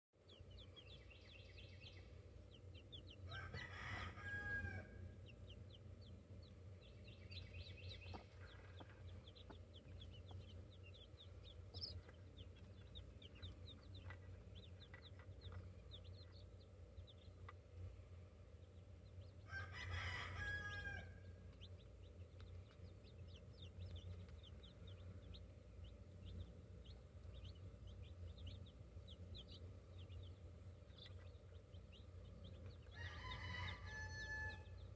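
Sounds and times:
chicks peeping: 0:00.2 - 0:34.9
low background hum: 0:00.2 - 0:34.9
rooster crowing: 0:03.3 - 0:05.0, 0:19.5 - 0:21.2, 0:32.9 - 0:34.8.

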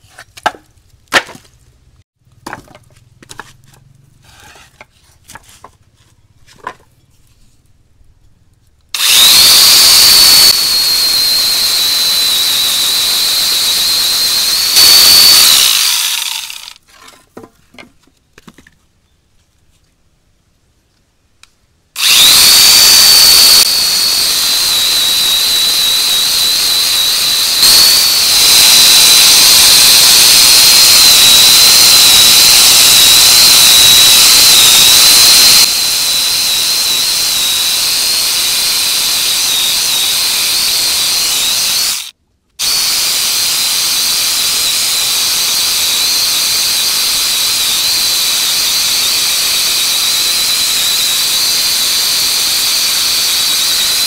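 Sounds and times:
angle grinder whining: 0:09.0 - 0:16.8, 0:22.0 - 0:54.0.

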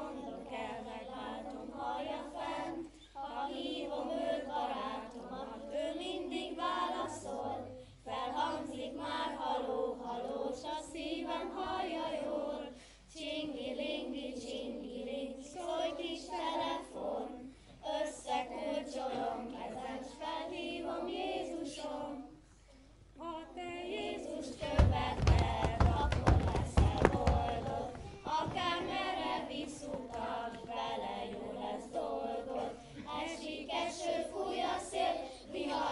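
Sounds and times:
children's choir singing: 0:00.0 - 0:22.4, 0:23.2 - 0:35.9
heavy thumps: 0:24.6 - 0:31.5.

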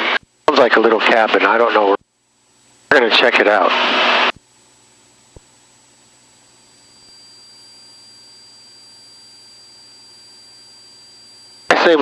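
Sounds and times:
electronic hiss and hum: 0:00.0 - 0:12.0
thin high steady tone: 0:06.0 - 0:12.0.

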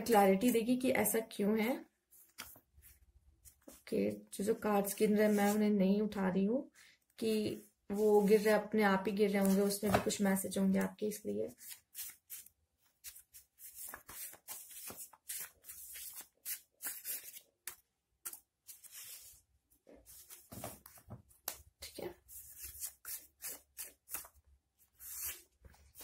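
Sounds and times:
cards being shuffled: 0:11.6 - 0:19.3, 0:22.5 - 0:24.4.

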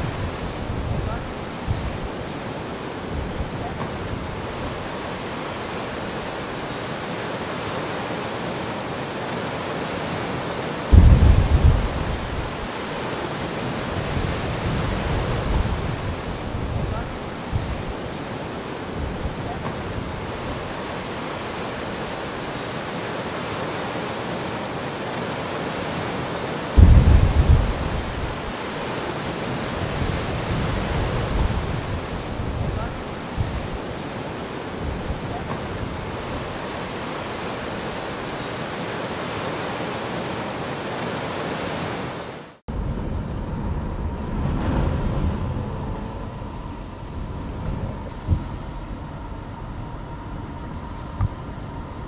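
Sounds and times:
wind buffeting microphone: 0:00.0 - 0:07.1, 0:10.1 - 0:22.7, 0:26.7 - 0:38.4, 0:42.7 - 0:52.0
rough sea surf: 0:00.0 - 0:52.0
wind: 0:00.0 - 0:52.0.

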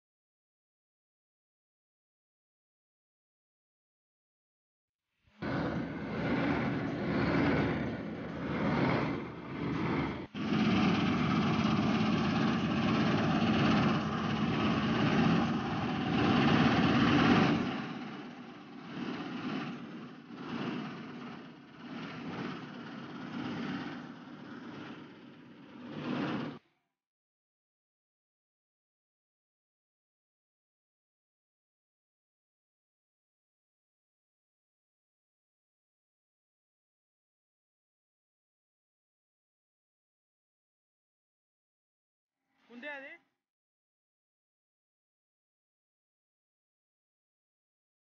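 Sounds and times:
combine harvester running: 0:05.4 - 0:26.6.

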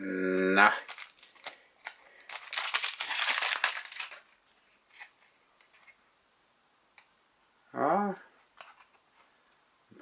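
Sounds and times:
foil wrapper crinkling and tearing: 0:00.7 - 0:04.4.

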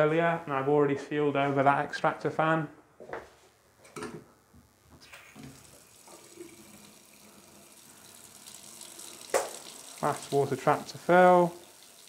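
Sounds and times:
tap running into a metal sink: 0:09.2 - 0:09.8.

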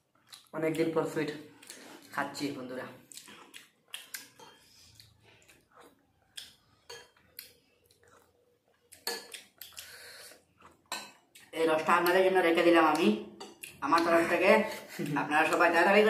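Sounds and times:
spoons clinking on plates: 0:06.8 - 0:07.2, 0:09.0 - 0:09.4, 0:10.9 - 0:11.3.

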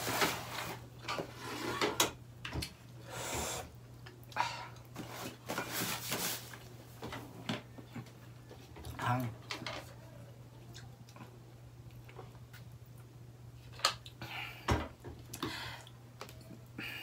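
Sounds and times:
chewing with smacks and clicks: 0:10.4 - 0:14.2.

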